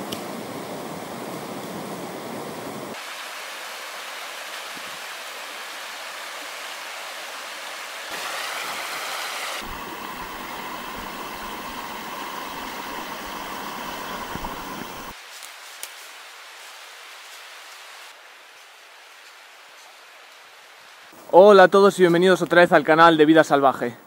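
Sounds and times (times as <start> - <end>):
stream splashing over rocks: 2.9 - 15.2.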